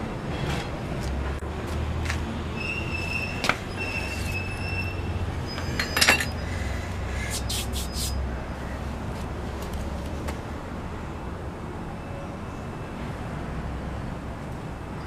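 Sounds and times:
thin high squeal: 2.6s - 6.4s, 7.3s - 8.2s.

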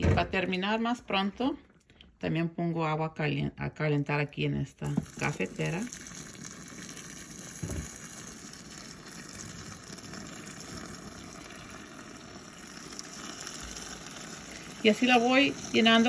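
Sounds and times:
water pouring from kettle: 4.8s - 16.0s.

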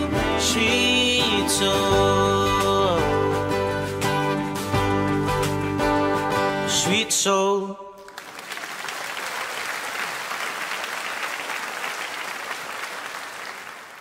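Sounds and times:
person singing: 0.0s - 4.8s, 6.4s - 8.1s
audience applauding: 8.0s - 14.0s.

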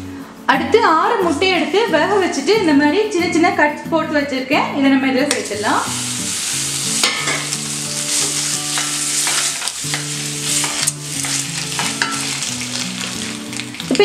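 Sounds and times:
eggs sizzling in hot oil: 5.2s - 14.0s.

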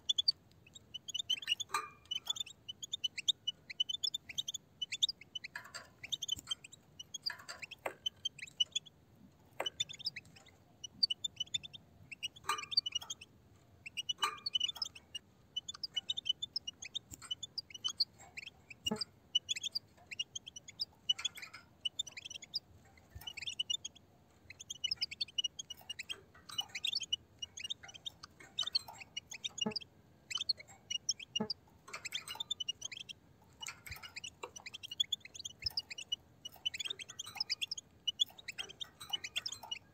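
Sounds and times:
goldfinches twittering: 9.6s - 39.9s.

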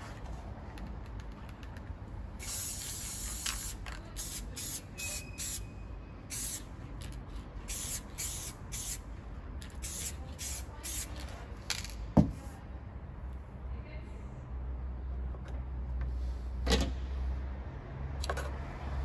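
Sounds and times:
spray paint can hissing: 2.4s - 5.7s, 6.3s - 9.0s, 9.6s - 11.2s.

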